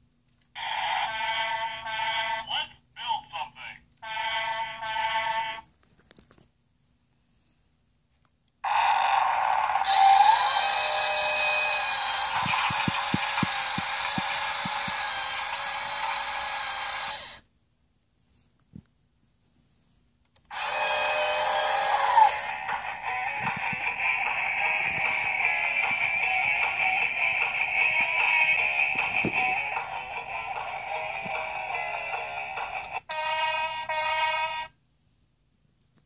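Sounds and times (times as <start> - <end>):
toy truck electronic sound effect: 0.6 - 2.8, 4.0 - 5.6, 8.6 - 17.4, 20.5 - 34.7.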